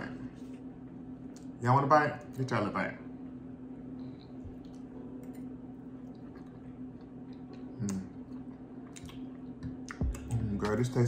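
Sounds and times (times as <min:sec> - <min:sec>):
low room hum: 0:00.0 - 0:11.0
chewing: 0:04.2 - 0:10.0.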